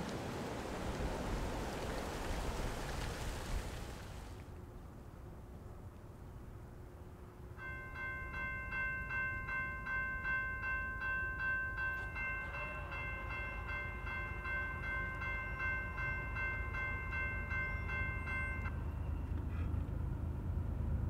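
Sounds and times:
low rumble of train: 0.0s - 21.0s
bell ringing: 7.6s - 18.9s.

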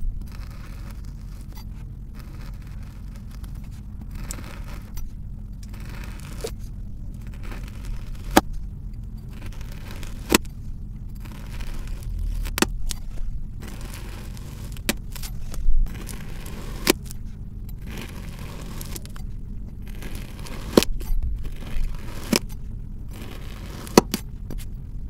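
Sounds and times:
knife slicing kinetic sand: 7.3s - 8.5s, 9.3s - 10.5s, 13.6s - 17.2s, 19.9s - 21.0s, 21.8s - 22.5s, 23.2s - 24.2s.

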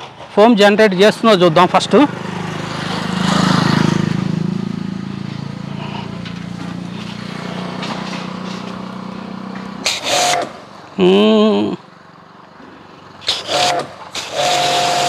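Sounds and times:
pressure washer running: 9.2s - 10.7s, 13.2s - 15.0s.

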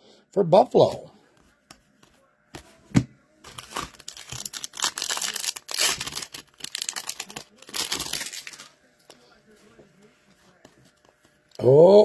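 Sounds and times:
foil wrapper tearing and crinkling: 3.5s - 8.7s.

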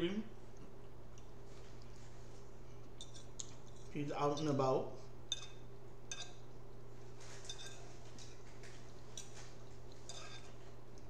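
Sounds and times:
steady low hum: 0.0s - 11.0s
chewing and mouth clicks: 3.0s - 3.9s
fork clinking on plate: 7.4s - 7.9s, 10.1s - 10.6s.

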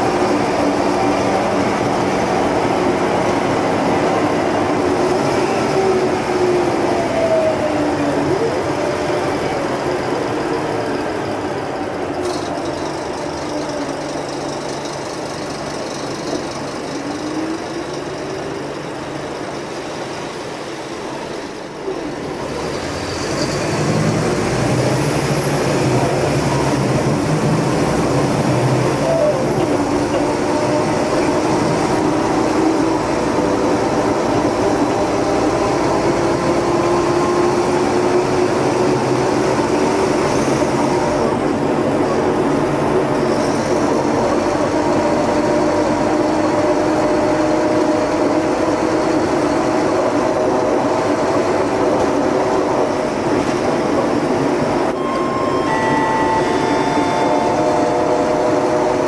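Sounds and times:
bus engine and road noise: 0.0s - 59.0s
rising whine: 54.9s - 59.0s.

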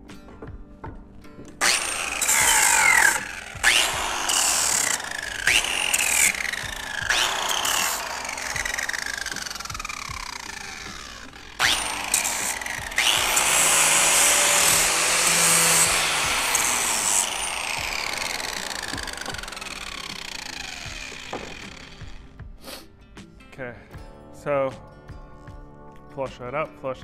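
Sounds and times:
angle grinder sanding wood: 1.6s - 22.3s.

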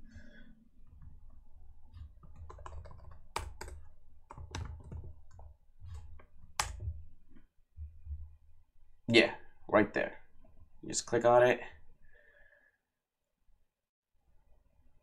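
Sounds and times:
typing on keyboard: 1.9s - 6.8s.

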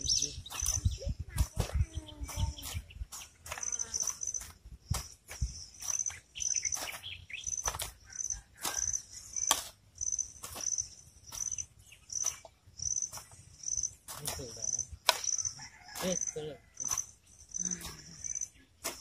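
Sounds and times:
faint bird calls: 0.0s - 9.6s
insect chirping in high pulses: 1.7s - 18.7s.

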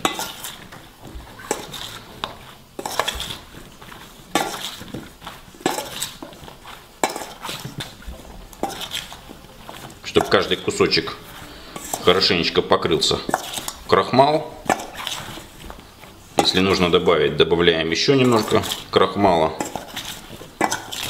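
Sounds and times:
metal spoon scraping steel bowl: 0.0s - 0.8s, 1.4s - 3.5s, 5.6s - 15.7s, 18.0s - 21.0s.

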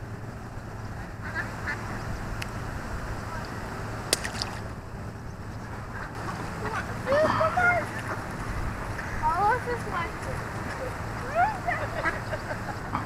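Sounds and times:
ducks quacking: 1.0s - 2.2s, 5.8s - 13.0s
sharp click: 4.1s - 4.6s.

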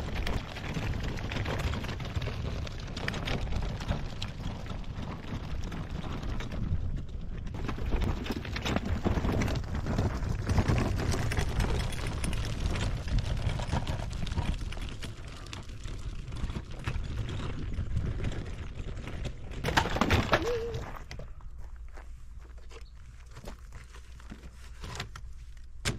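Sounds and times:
wagon rattles and knocks: 0.0s - 21.4s
wagon wheels rumbling on dirt: 0.0s - 25.9s
footsteps: 19.7s - 25.7s.

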